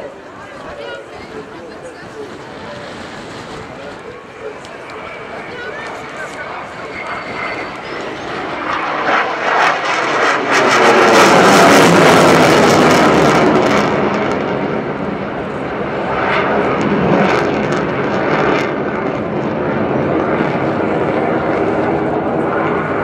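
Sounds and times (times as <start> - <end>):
jet engine rumble: 0.0 - 23.0
jet engine crackling hiss: 1.2 - 14.1.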